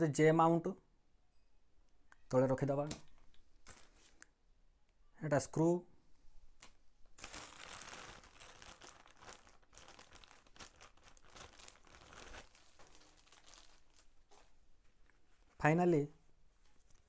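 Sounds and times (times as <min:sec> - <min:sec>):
plastic bag crinkling: 0:03.6 - 0:04.2, 0:07.1 - 0:15.6.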